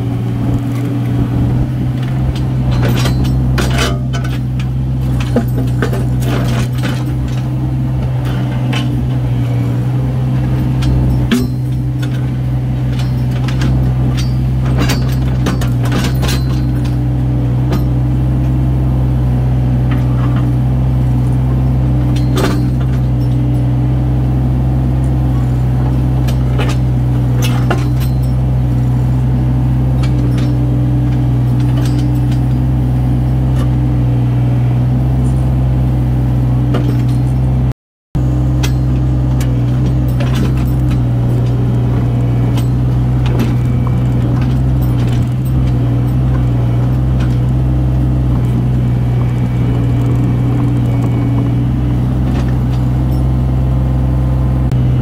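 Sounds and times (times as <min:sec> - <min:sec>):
diesel engine running steadily: 0:00.0 - 0:55.0
sharp metal knocks and clanks: 0:01.6 - 0:09.4, 0:10.4 - 0:18.2, 0:22.0 - 0:23.8, 0:25.2 - 0:28.9, 0:29.9 - 0:33.8, 0:36.7 - 0:37.5, 0:38.5 - 0:53.5.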